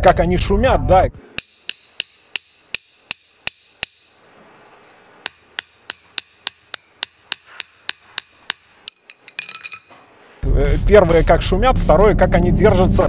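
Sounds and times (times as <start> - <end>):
studs tapping on asphalt: 5.2 - 9.9.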